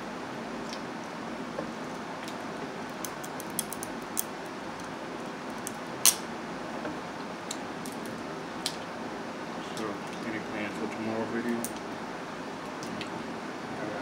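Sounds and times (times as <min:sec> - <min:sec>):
steady background hum: 0:00.0 - 0:14.0
crab shells cracking: 0:02.2 - 0:04.4.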